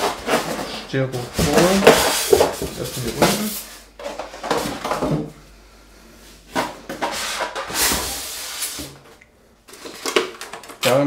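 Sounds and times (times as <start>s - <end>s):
cardboard and styrofoam rustling: 0.0s - 5.2s.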